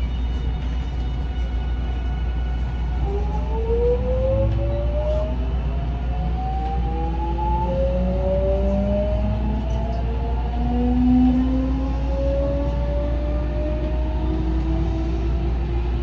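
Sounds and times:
train inverter whining: 0.0s - 16.0s.

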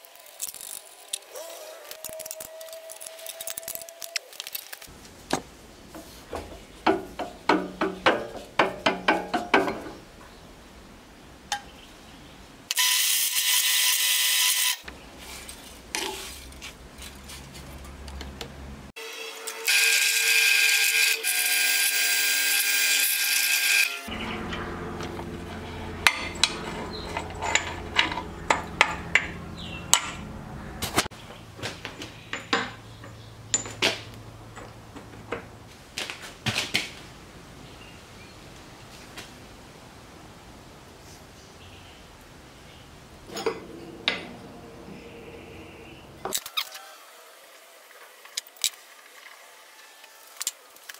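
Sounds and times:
machine low hum: 24.1s - 30.8s, 43.3s - 46.3s.

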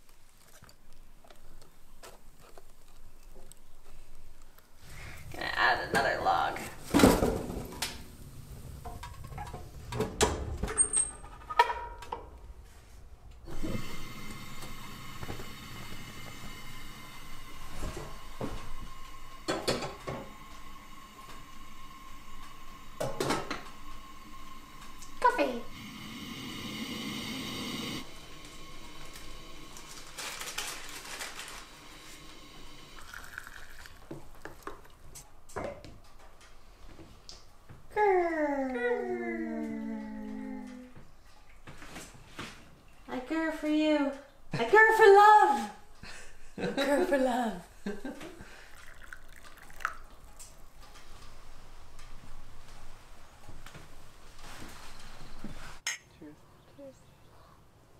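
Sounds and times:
camp stove burner hissing: 13.4s - 34.8s, 47.8s - 55.8s
cups clicking and knocking: 33.0s - 35.0s, 48.7s - 50.6s.

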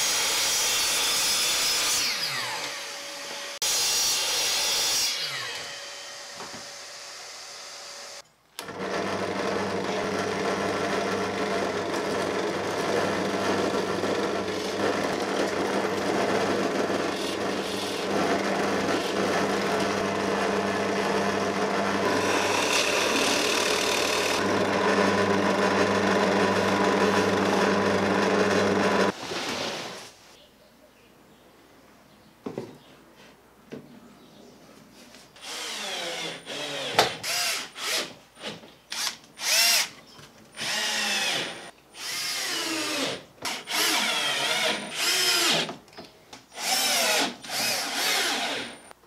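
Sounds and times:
drill press motor humming: 8.6s - 29.1s.

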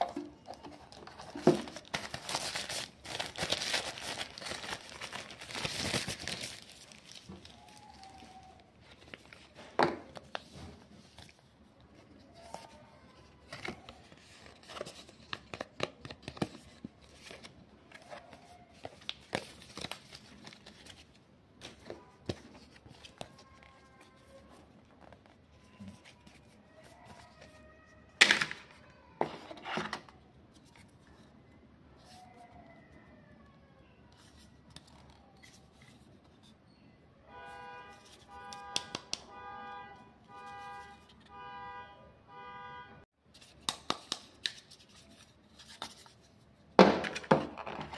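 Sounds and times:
paper and card rustling: 0.0s - 31.3s, 37.9s - 39.1s, 40.6s - 41.3s, 43.3s - 47.9s.

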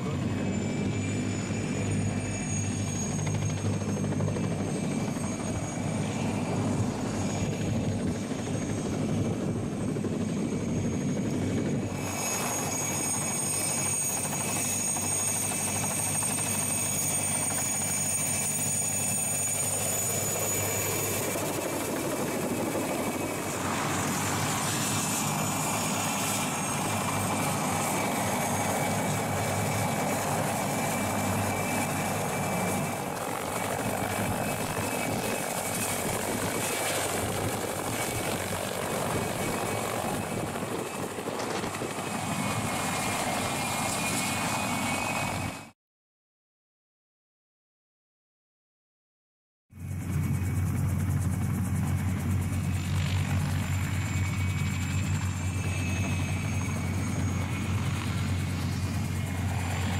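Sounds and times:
helicopter engines whining: 0.0s - 45.7s, 49.8s - 59.9s
helicopter rotor chop: 0.0s - 45.7s, 49.8s - 59.9s.

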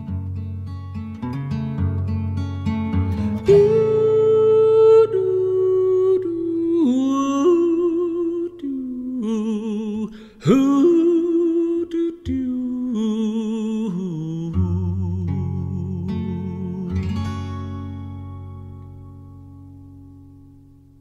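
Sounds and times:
person humming slow melody: 3.3s - 17.1s.

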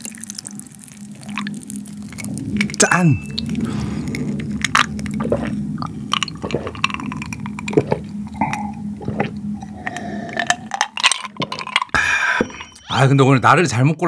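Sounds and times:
fighter jets droning: 0.0s - 13.2s
wet swallows of gulping water: 2.1s - 12.0s.

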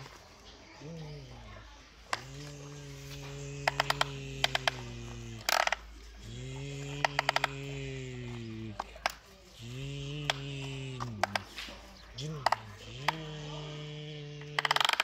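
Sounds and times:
person imitating engine humming: 2.1s - 15.0s
plastic toy clicks: 3.5s - 5.9s, 6.8s - 9.3s, 10.2s - 11.6s, 14.4s - 15.0s.

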